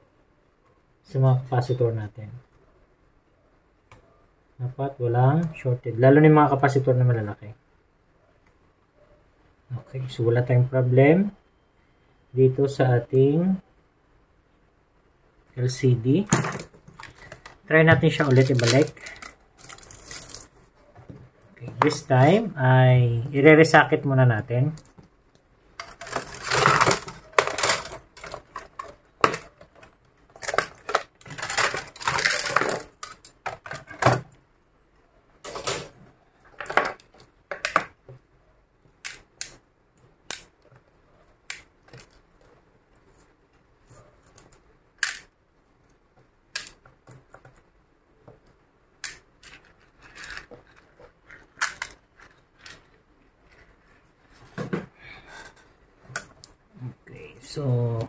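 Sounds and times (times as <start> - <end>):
rustling and knocks: 49.4 - 55.0.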